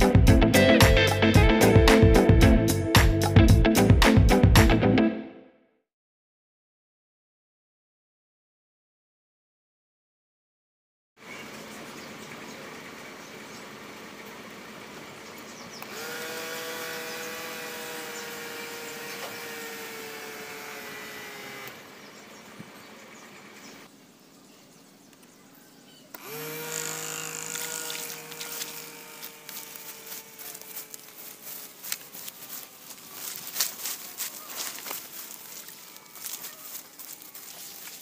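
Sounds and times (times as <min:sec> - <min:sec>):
electric motor whine: 0:13.8 - 0:23.9, 0:26.1 - 0:38.0.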